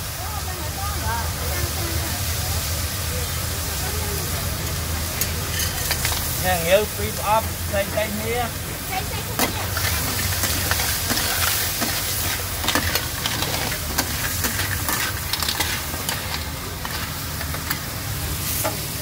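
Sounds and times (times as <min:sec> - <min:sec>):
food sizzling in a wok: 0:00.0 - 0:19.0
metal spatula scraping a pan: 0:09.4 - 0:18.9.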